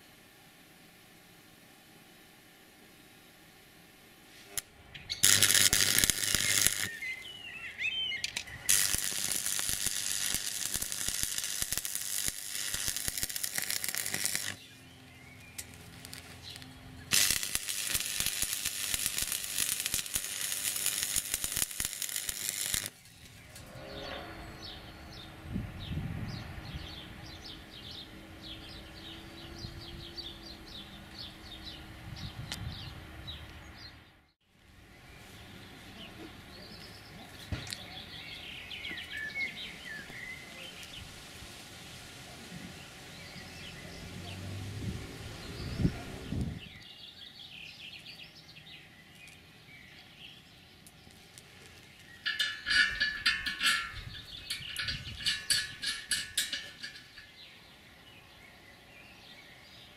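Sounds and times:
welding arc crackling and sizzling: 0:04.4 - 0:07.3, 0:08.1 - 0:23.7, 0:50.8 - 0:57.4
birds chirping: 0:04.8 - 0:41.1, 0:42.7 - 0:44.6, 0:45.3 - 0:59.9.

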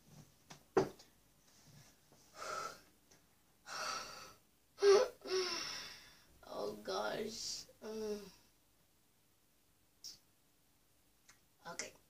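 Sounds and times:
girl breathing hard and gasping: 0:02.3 - 0:02.9, 0:03.6 - 0:06.3.

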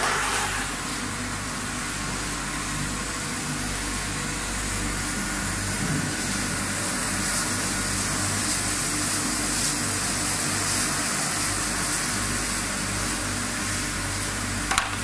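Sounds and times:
conveyor motors humming: 0:00.0 - 0:15.0
water spraying hiss: 0:03.1 - 0:15.0.

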